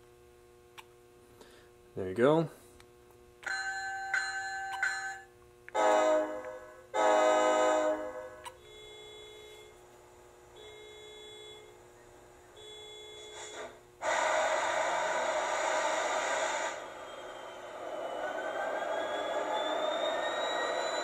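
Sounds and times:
model locomotive engine whine: 5.7s - 21.0s
faint repeated tones: 8.4s - 13.6s
loud hiss: 13.3s - 18.0s.

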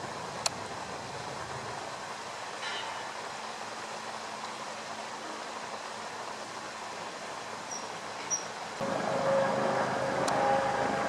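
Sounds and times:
outdoor background hiss: 0.0s - 11.0s
mechanical drone with steady tones: 8.8s - 11.0s.

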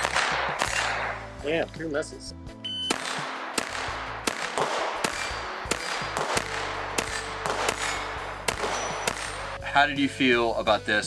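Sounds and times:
rapid pistol shots: 0.0s - 1.3s, 2.9s - 9.6s.

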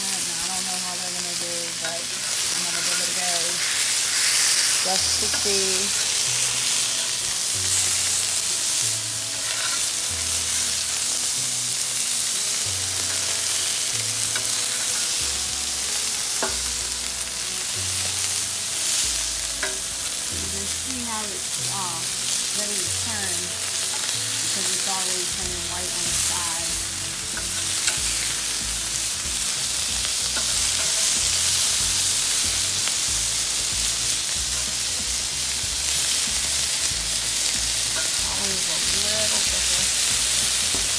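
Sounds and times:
food sizzling on a griddle: 0.0s - 40.9s.

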